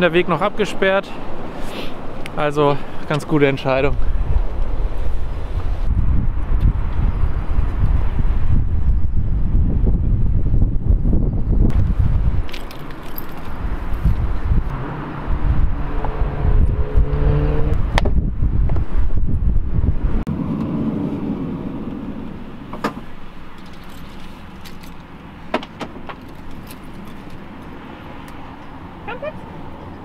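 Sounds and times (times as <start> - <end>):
keys jangling: 12.4 - 13.6, 23.6 - 25.1, 26.2 - 27.7
vehicle rumbling past: 13.1 - 25.5.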